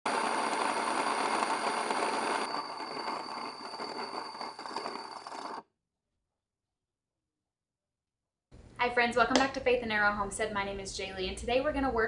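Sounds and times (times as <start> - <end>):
electric grain mill grinding: 0.1 - 5.6.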